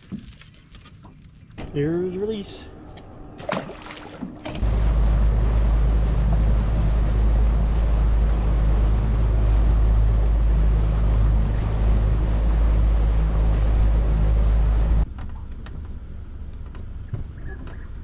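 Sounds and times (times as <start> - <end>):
boat motor droning: 2.7 - 18.0
wind rush on microphone: 4.5 - 15.0.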